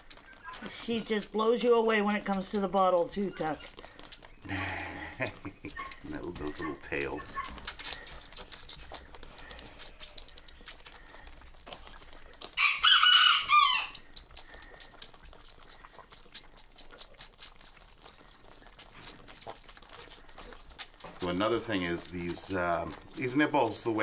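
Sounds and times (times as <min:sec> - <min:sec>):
animals sucking on bottle nipples: 0:00.0 - 0:24.0
rooster crowing: 0:12.6 - 0:14.0.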